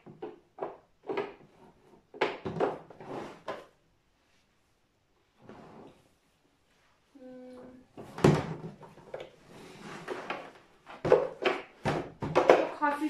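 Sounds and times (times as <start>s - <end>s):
plastic clunks and knocks: 2.1s - 3.6s, 10.2s - 12.8s
plastic scraping: 8.0s - 12.8s.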